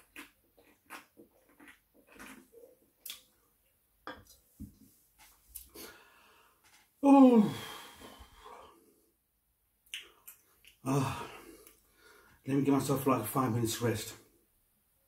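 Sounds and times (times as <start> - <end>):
man burping: 10.8 - 11.5.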